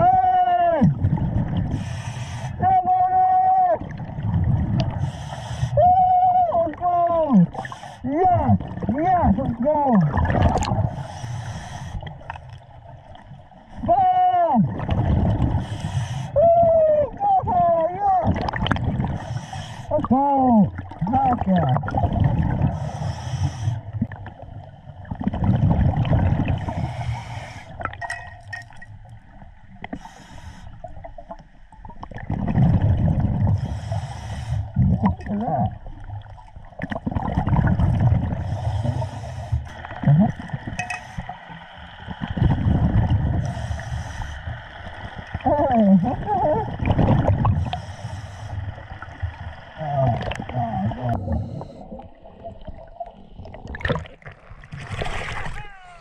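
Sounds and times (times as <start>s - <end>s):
gurgling rush of bubbles: 0.8s - 2.0s, 3.8s - 5.2s, 8.3s - 11.1s, 14.6s - 15.9s, 18.2s - 23.1s, 23.7s - 29.8s, 31.3s - 33.9s, 34.6s - 55.8s
regulator inhale hiss: 1.7s - 2.6s, 5.0s - 5.8s, 7.6s - 8.0s, 10.9s - 12.2s, 15.6s - 16.4s, 19.2s - 19.9s, 22.8s - 23.9s, 26.7s - 27.8s, 29.9s - 30.9s, 33.6s - 34.8s, 38.4s - 39.8s, 43.4s - 44.8s, 47.6s - 49.0s
water rushing: 6.4s - 11.1s, 23.8s - 29.9s, 34.8s - 56.0s.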